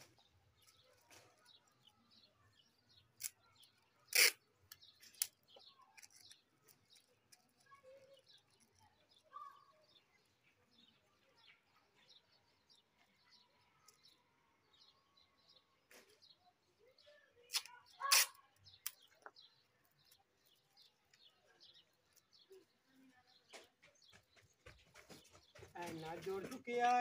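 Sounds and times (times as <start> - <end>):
small birds chirping: 0.0 - 27.0
adhesive tape tearing off roll: 3.2 - 5.4, 17.5 - 19.1.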